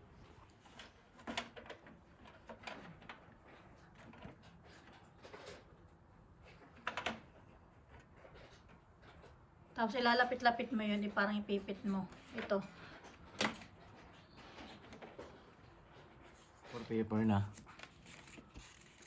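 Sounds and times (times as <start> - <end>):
paper rustling against plastic: 15.9 - 19.0.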